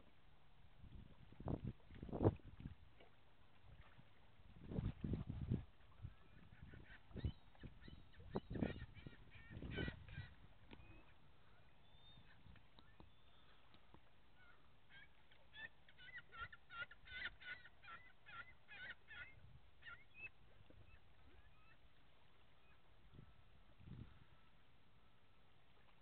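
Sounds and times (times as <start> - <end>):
faint bird calls: 5.9 - 25.2.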